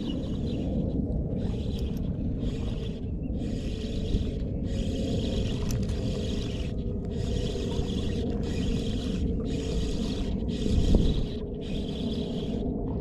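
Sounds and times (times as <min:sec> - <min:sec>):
steady low rumble: 0:00.0 - 0:13.0
spinning reel being cranked: 0:01.4 - 0:12.6.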